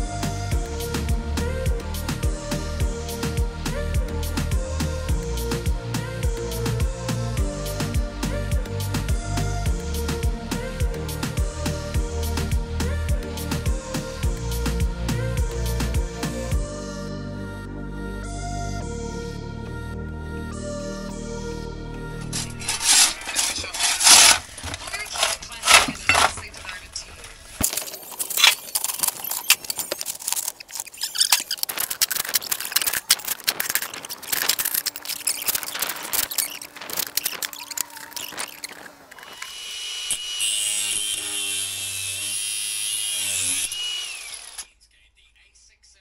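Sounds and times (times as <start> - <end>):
shovel scraping brick rubble: 22.2 - 39.3.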